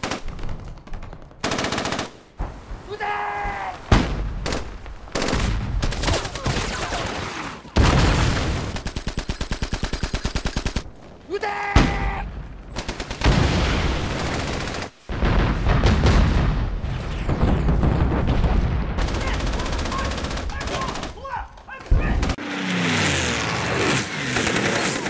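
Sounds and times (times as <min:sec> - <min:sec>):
machine-gun fire: 0:12.8 - 0:21.2.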